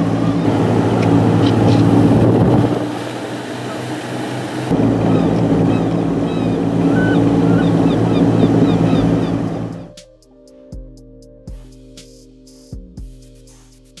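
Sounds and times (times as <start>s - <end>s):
wind and water noise: 0.0s - 9.9s
boat engine drone: 0.0s - 10.0s.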